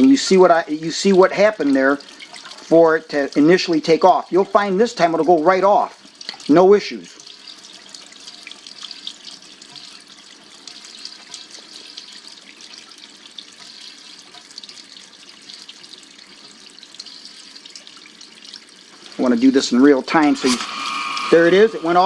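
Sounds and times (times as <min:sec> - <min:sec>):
sump pump running: 0:18.8 - 0:22.0
water splashing and spraying: 0:19.0 - 0:22.0.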